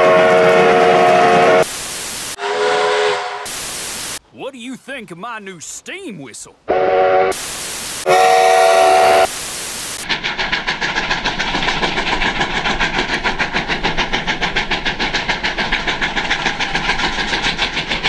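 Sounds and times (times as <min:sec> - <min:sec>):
steam locomotive exhaust chuffs: 0:00.0 - 0:04.2, 0:06.7 - 0:18.0.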